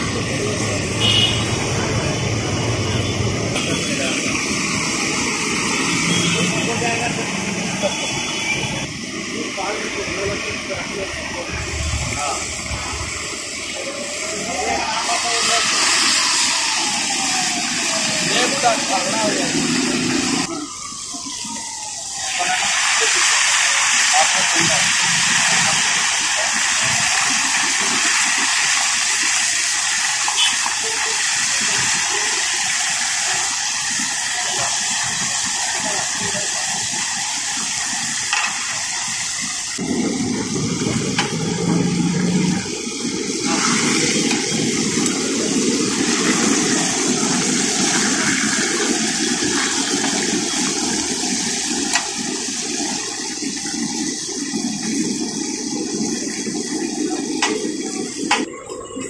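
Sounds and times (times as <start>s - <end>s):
fish sizzling in hot oil: 0.0s - 58.6s
low rumble: 11.4s - 13.7s.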